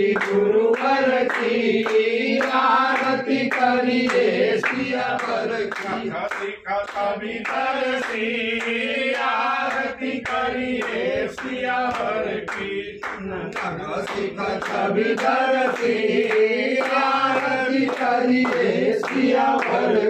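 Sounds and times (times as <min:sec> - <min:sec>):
group singing devotional song: 0:00.0 - 0:20.0
hand claps: 0:00.0 - 0:20.0.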